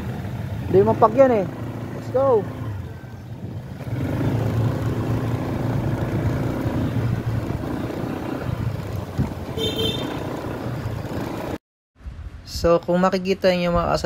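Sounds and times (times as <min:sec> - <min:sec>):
scooter engine running: 0:00.0 - 0:11.6
wind noise on microphone: 0:06.2 - 0:10.0, 0:12.0 - 0:12.8.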